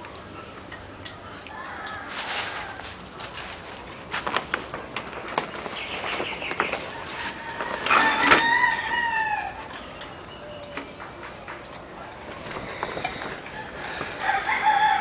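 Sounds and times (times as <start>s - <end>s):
rooster crowing: 1.5s - 2.9s, 6.9s - 9.7s, 13.4s - 15.0s.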